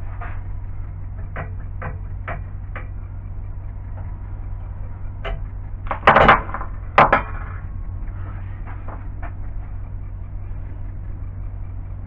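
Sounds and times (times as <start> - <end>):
loud rattling metal clatter: 0.0 - 12.0
steady low hum: 0.0 - 12.0
sharp metal knocks: 1.1 - 3.0, 5.2 - 7.7.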